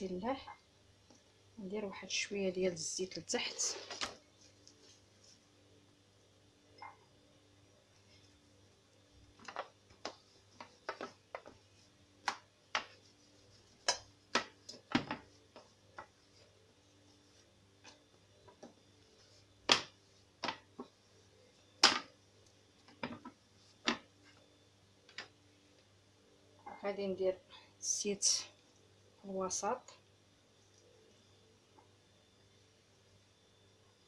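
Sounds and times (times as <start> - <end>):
faint steady hum: 0.0 - 34.0
rolling pin on stone countertop: 9.3 - 21.0.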